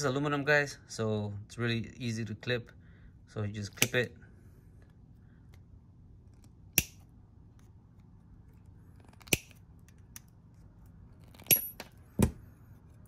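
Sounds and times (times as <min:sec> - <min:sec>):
nippers snapping through metal: 0:09.1 - 0:10.3.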